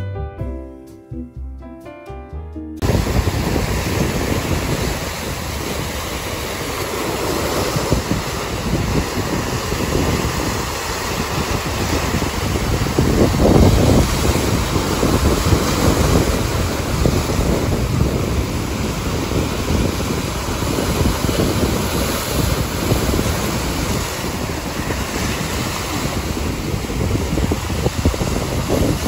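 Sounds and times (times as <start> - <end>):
surf breaking on rocks: 2.8 - 29.0
wind buffeting the microphone: 2.8 - 29.0.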